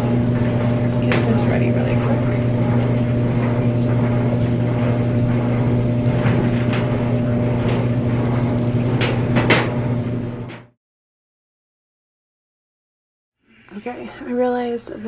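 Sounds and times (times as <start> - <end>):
hair dryer running: 0.0 - 7.9.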